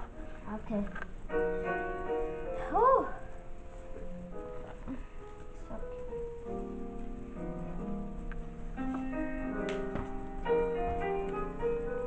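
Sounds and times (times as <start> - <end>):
instrumental keyboard music: 0.0 - 12.0.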